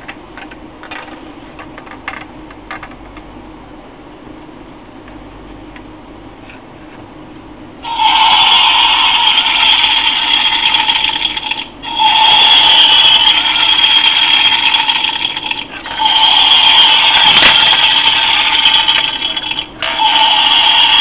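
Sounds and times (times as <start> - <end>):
alarm clock harsh electronic buzz: 7.8 - 21.0.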